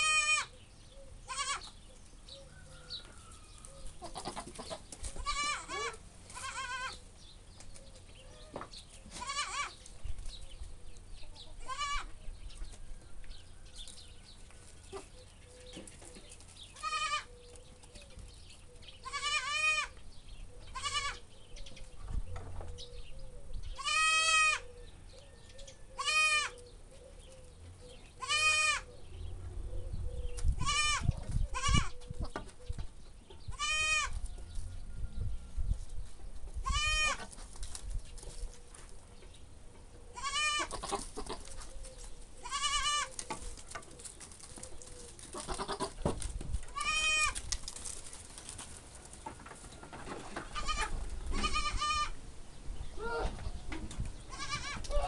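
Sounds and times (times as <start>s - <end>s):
goat bleating: 0.0s - 0.5s, 1.2s - 1.7s, 4.0s - 7.0s, 9.2s - 9.8s, 11.6s - 12.1s, 16.7s - 17.3s, 19.0s - 20.0s, 20.7s - 21.2s, 23.8s - 24.6s, 26.0s - 26.6s, 28.2s - 28.9s, 30.6s - 31.9s, 33.5s - 34.2s, 36.6s - 37.3s, 40.2s - 41.5s, 42.4s - 43.2s, 45.3s - 46.0s, 46.7s - 47.4s, 50.5s - 52.2s, 54.3s - 55.0s.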